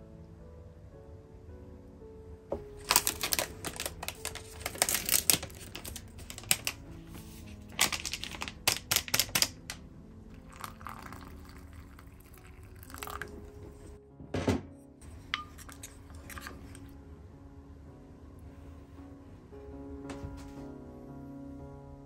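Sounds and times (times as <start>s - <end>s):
soft background music: 0.0s - 22.0s
paper packet crinkling: 2.5s - 9.8s
water pouring into bowl: 10.3s - 13.9s.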